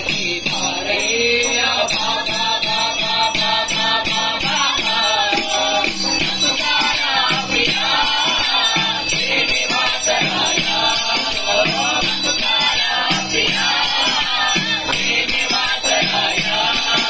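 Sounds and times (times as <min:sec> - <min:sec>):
jingling percussion: 0:00.0 - 0:17.0.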